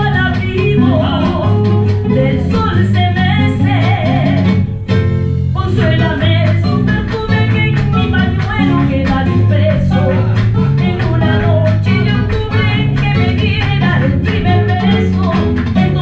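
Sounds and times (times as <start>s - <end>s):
guitar with steady beat: 0.0s - 16.0s
person singing: 5.6s - 16.0s.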